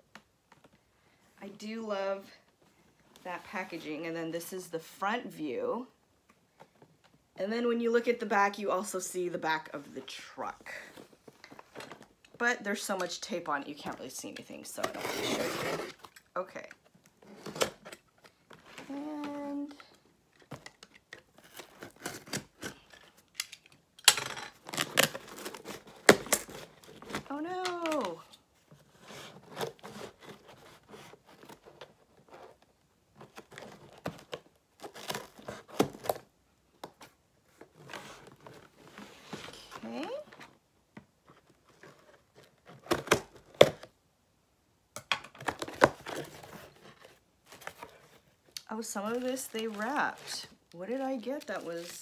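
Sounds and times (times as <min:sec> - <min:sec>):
cardboard rustling: 0:13.7 - 0:16.1, 0:24.6 - 0:44.0, 0:45.4 - 0:52.0
packing tape ripping: 0:21.4 - 0:22.9, 0:24.6 - 0:28.2.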